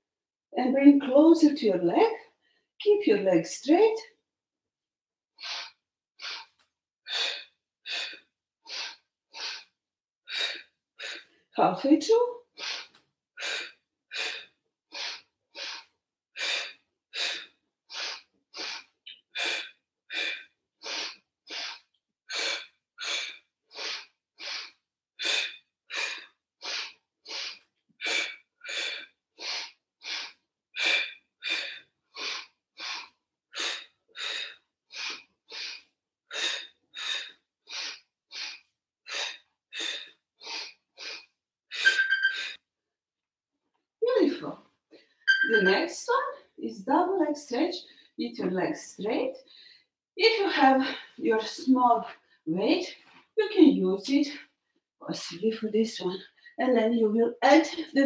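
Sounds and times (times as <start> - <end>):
woman breathing sharply: 12.6 - 42.6, 49.5 - 49.9.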